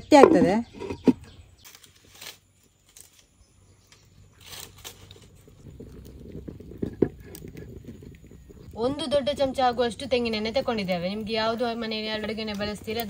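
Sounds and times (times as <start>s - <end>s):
dry sticks rustling and scraping: 0.8s - 8.5s.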